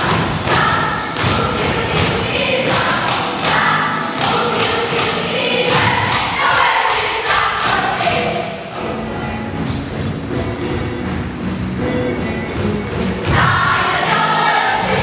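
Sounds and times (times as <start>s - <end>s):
children's choir singing: 0.0s - 9.2s, 13.0s - 15.0s
music with steady beat: 0.0s - 15.0s.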